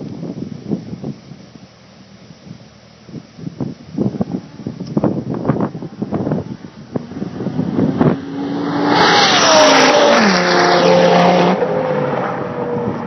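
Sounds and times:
race car passing by: 0:07.1 - 0:13.0.

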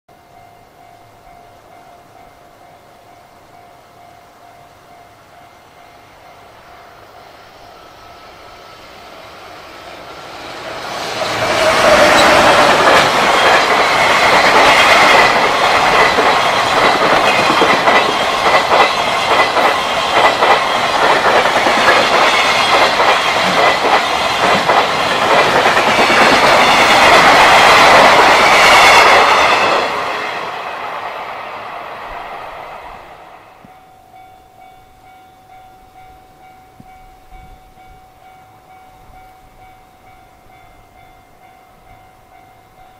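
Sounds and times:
level-crossing warning bell: 0:00.1 - 0:09.4, 0:10.0 - 0:30.5, 0:33.5 - 0:42.9
freight train wheels clattering: 0:10.1 - 0:31.2.

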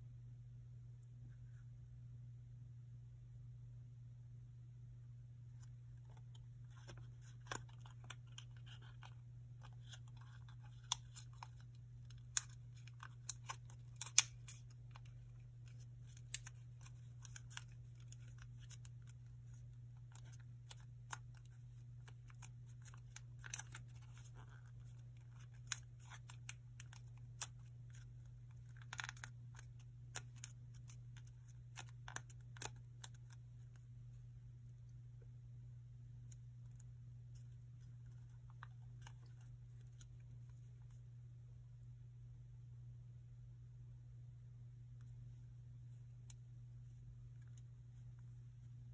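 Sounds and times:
steady low hum: 0:00.0 - 0:48.9
paper crinkling and creasing: 0:05.6 - 0:34.2, 0:36.7 - 0:41.0.

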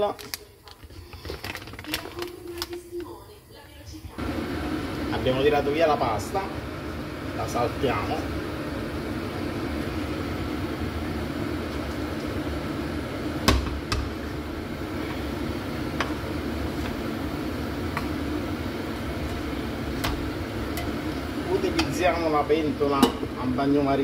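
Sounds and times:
wooden spoon knocking a pan: 0:13.4 - 0:14.2.

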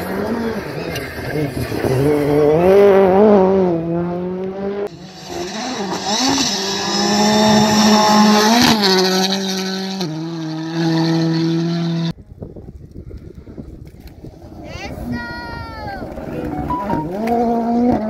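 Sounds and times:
rally car engine revving: 0:00.0 - 0:12.1, 0:16.0 - 0:18.0.

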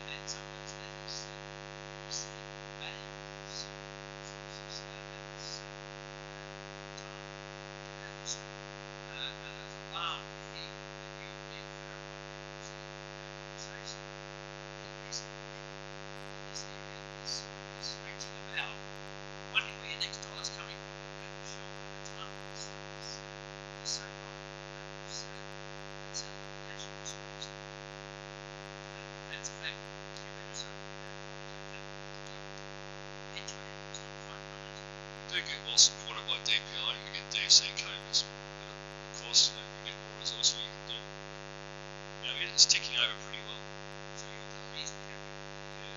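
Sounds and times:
electrical mains hum: 0:00.0 - 0:45.9.

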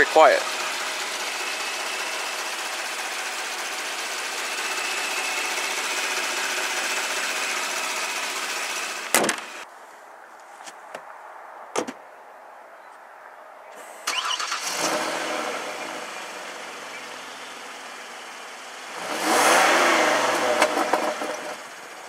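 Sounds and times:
car engine idling with faint whine: 0:00.0 - 0:09.6, 0:14.1 - 0:22.0
sharp thump: 0:09.1 - 0:09.5, 0:11.7 - 0:12.0.

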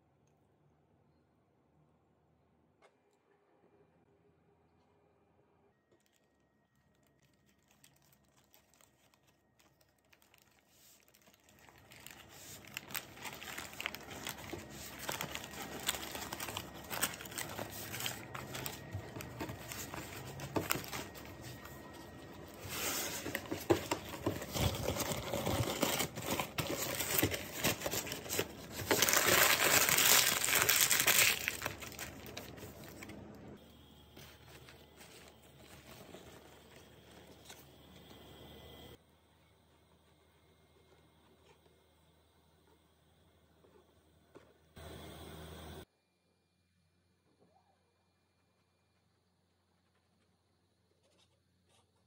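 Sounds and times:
baking paper crinkling: 0:06.9 - 0:33.3, 0:34.2 - 0:37.7.

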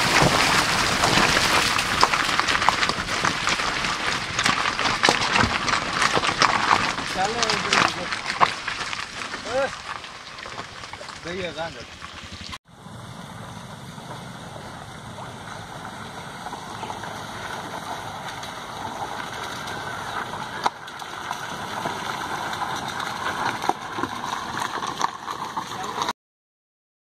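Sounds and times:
tyres crunching on gravel: 0:00.0 - 0:12.6, 0:14.0 - 0:26.1
low car engine: 0:00.0 - 0:26.1
sharp stone clicks: 0:00.2 - 0:12.5.

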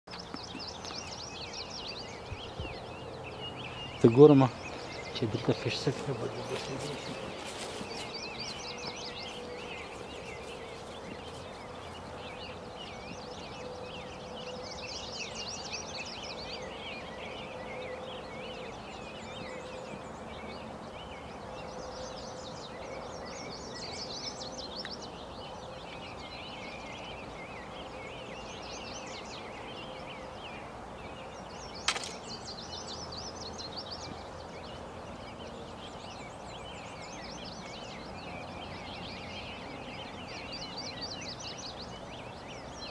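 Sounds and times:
songbirds chirping and trilling: 0:00.1 - 0:42.9
sharp click: 0:31.8 - 0:32.2.

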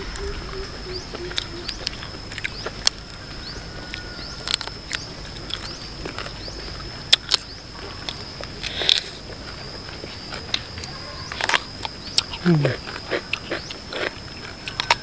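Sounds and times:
steady high-pitched tone: 0:00.0 - 0:08.6
chewing: 0:01.1 - 0:15.0.

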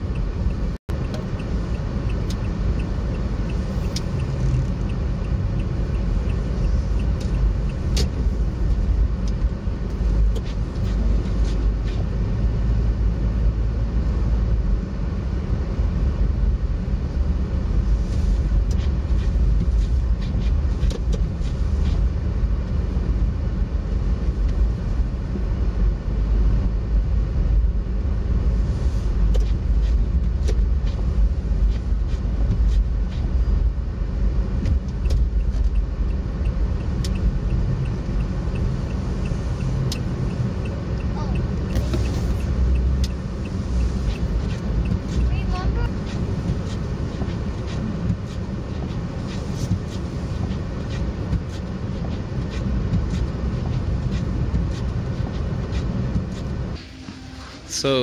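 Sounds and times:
car engine and tyres rumbling: 0:00.0 - 0:58.0.

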